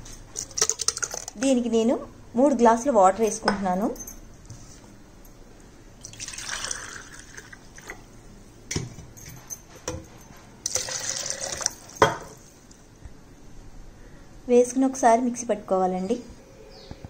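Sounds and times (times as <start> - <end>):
water pouring into plastic jar: 6.0 - 7.9, 10.7 - 11.8.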